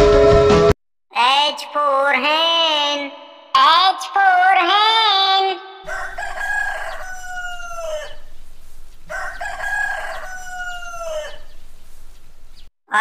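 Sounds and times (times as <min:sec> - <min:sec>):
rooster crowing: 0:05.9 - 0:12.7.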